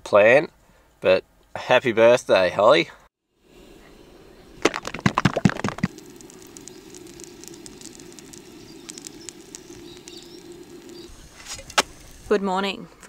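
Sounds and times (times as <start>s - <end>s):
pancakes sizzling in a frying pan: 5.2s - 12.6s.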